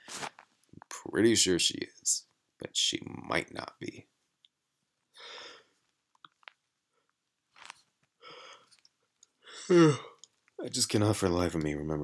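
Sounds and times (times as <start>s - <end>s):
man breathing: 5.1s - 5.8s, 8.2s - 10.3s.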